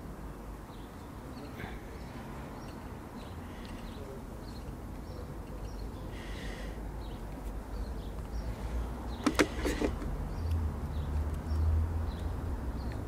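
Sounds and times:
distant birds chirping: 0.0s - 13.0s
clicks and rustles near microphone: 9.2s - 10.6s.

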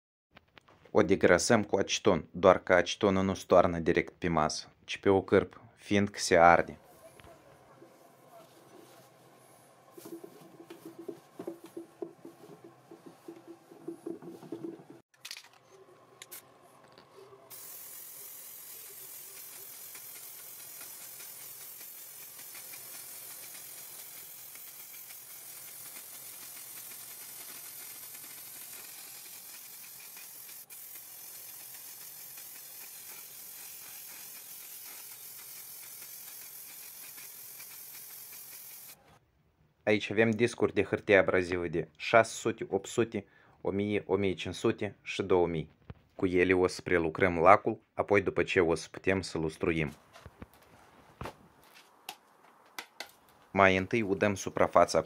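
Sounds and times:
aerosol spray hissing: 8.8s - 14.7s, 17.5s - 39.0s
spray can clicks and rattles: 17.5s - 39.0s.

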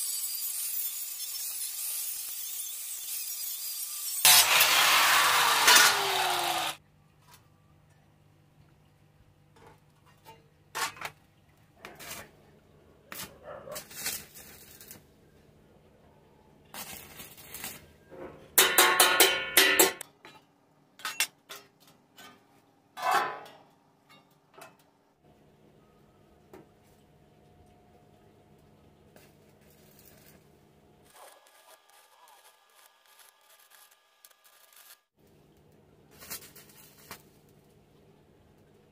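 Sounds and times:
welder crackling: 0.0s - 6.8s, 13.1s - 15.1s, 16.7s - 17.9s, 29.2s - 35.2s.

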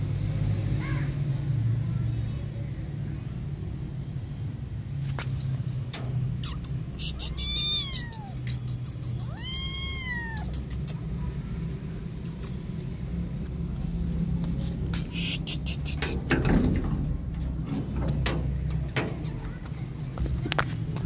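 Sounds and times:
steady low rumble: 2.7s - 21.0s
clicks and scuffs: 5.0s - 7.6s, 12.3s - 16.4s
kitten meowing: 6.4s - 11.0s.

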